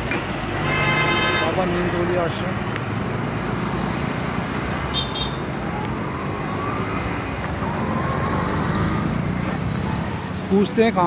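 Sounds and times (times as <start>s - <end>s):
highway traffic passing: 0.0s - 11.0s.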